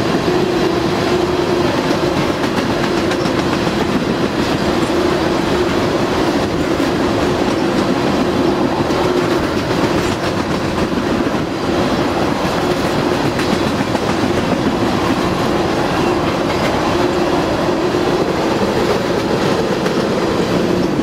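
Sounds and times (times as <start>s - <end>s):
train wheels rolling on rails: 0.0s - 21.0s.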